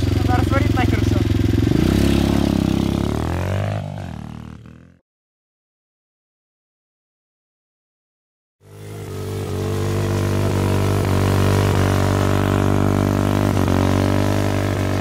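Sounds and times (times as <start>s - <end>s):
small motorcycle engine running: 0.0s - 5.0s, 8.6s - 15.0s.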